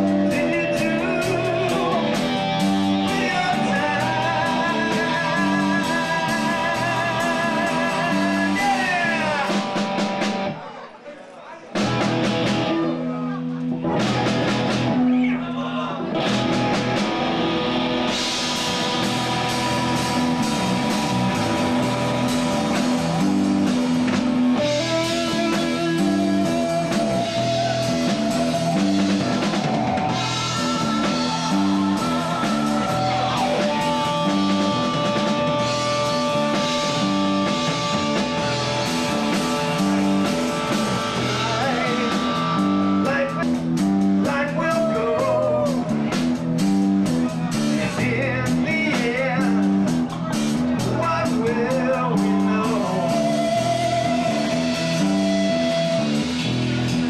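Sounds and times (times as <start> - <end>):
rock band playing: 0.0 - 10.8, 11.7 - 57.0
held electric guitar notes: 16.0 - 44.3, 49.5 - 57.0
drum hits: 16.2 - 44.3.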